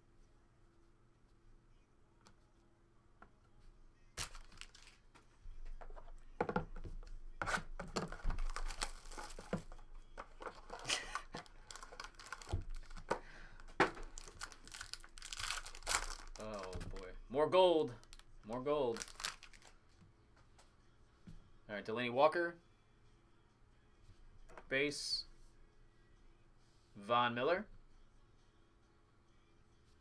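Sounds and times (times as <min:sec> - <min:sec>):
foil crinkling: 0:04.2 - 0:05.0, 0:08.0 - 0:13.1, 0:14.0 - 0:17.0, 0:18.0 - 0:18.2, 0:18.8 - 0:19.7
cardboard tearing: 0:07.4 - 0:09.6.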